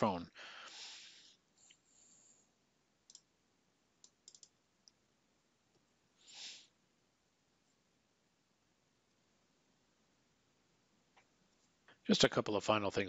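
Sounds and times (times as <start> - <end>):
faint mouse clicks: 3.0 - 3.3, 4.0 - 5.0
short soft hiss: 6.2 - 6.7.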